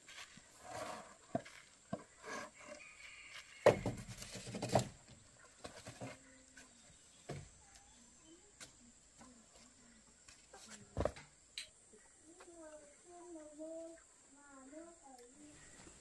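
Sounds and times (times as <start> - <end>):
wooden knocks and scuffs: 0.1 - 2.4, 3.3 - 7.7, 10.3 - 11.3.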